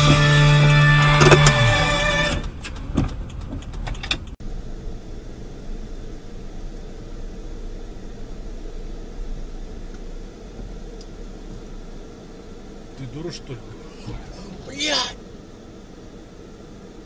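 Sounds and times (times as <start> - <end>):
car engine hum: 0.0 - 17.0
road noise: 0.0 - 17.0
sharp clicks: 1.1 - 4.4.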